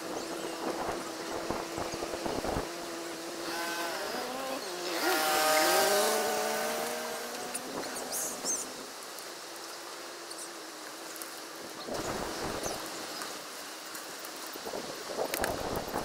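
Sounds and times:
wind buffeting microphone: 0.0s - 2.9s, 11.7s - 13.2s, 14.6s - 16.0s.

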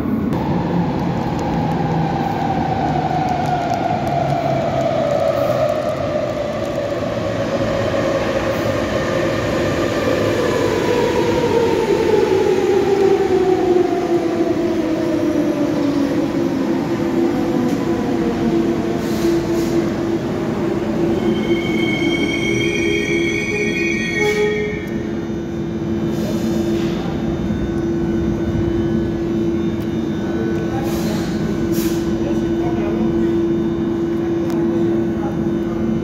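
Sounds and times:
train braking whine: 18.8s - 32.6s
high brake squeal: 21.1s - 25.0s.

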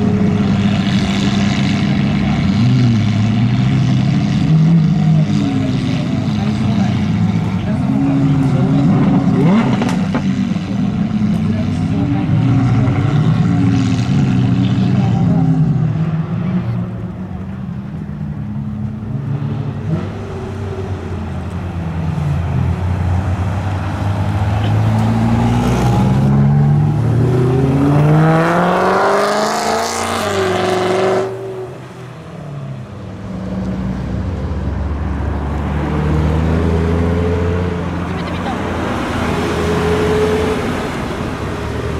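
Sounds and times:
car engine revving high: 0.0s - 16.1s, 22.8s - 32.3s.

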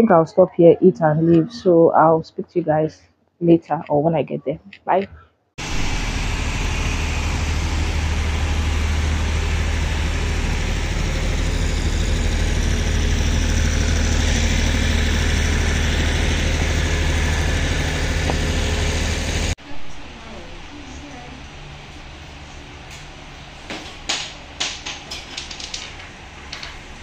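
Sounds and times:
petrol generator running: 5.6s - 27.0s.

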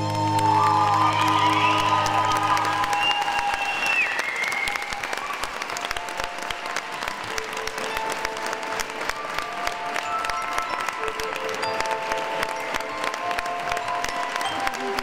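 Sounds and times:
dance music: 0.0s - 4.4s
audience applauding: 0.0s - 15.0s.

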